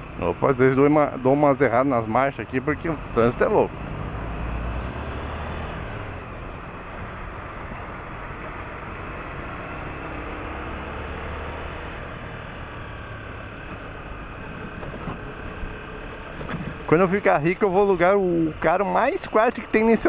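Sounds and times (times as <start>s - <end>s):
motorcycle engine rumble: 6.0s - 20.0s.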